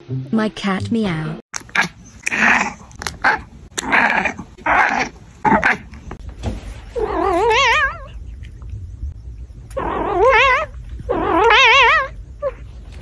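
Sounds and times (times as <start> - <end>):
cat meowing: 7.0 - 8.2, 9.8 - 12.6.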